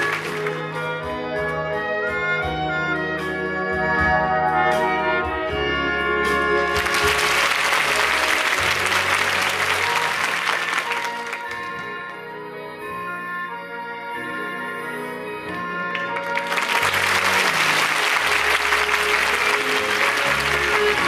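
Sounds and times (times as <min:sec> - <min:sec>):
audience applause: 0:00.0 - 0:00.7, 0:06.7 - 0:11.7, 0:15.9 - 0:21.0
brassy orchestral show music: 0:00.0 - 0:21.0.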